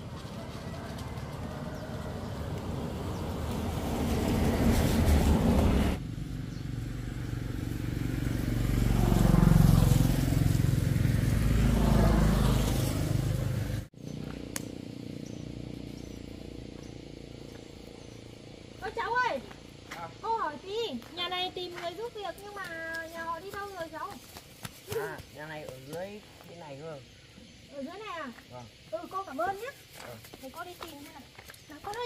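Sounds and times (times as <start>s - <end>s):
car driving past: 0.0s - 18.7s
motorbikes driving past: 0.0s - 24.0s.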